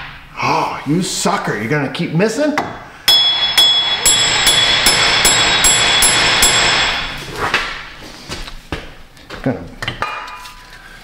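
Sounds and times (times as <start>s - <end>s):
hammer striking steel hub: 2.6s - 7.2s.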